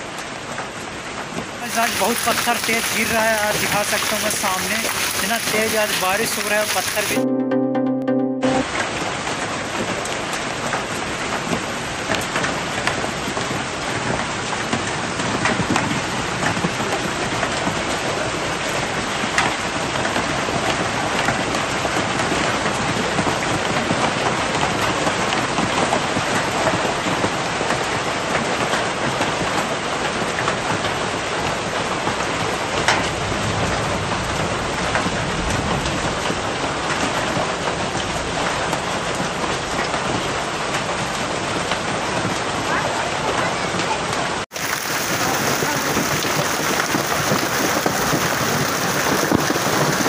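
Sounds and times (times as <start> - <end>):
heavy rain and hail: 0.0 - 7.2, 8.9 - 50.0
hail knocks: 1.6 - 7.2, 44.5 - 50.0.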